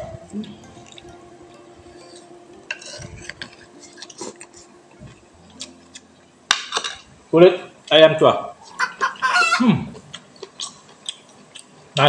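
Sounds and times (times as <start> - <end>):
spoons clinking on plates: 2.0 - 4.7.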